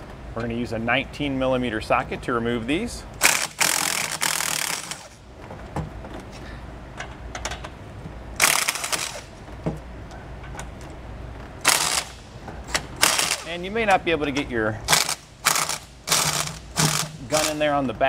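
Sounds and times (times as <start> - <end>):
impact wrench hammering: 3.2 - 5.2, 11.6 - 13.5, 14.9 - 17.6.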